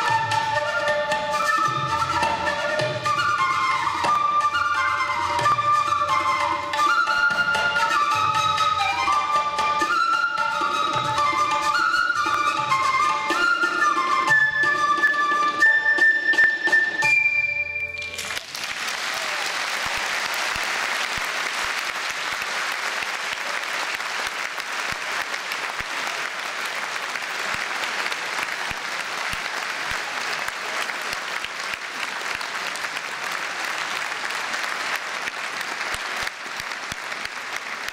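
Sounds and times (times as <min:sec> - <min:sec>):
flute note: 0:00.0 - 0:18.2
audience applauding: 0:18.0 - 0:37.9.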